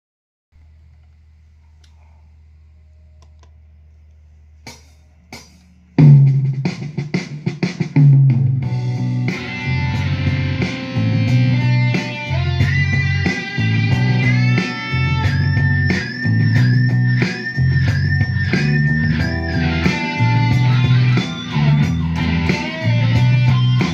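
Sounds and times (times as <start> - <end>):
amplifier hum: 8.5 - 23.9
electric guitar riff: 8.5 - 23.9.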